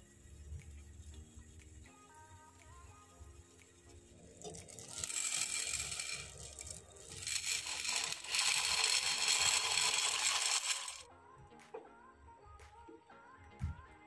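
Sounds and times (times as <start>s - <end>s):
dry pasta pouring into water: 4.4s - 11.0s.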